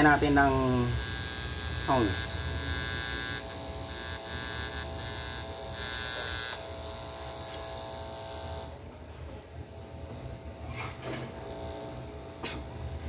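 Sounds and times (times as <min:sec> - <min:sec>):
amplifier buzz and hum: 0:00.0 - 0:13.0.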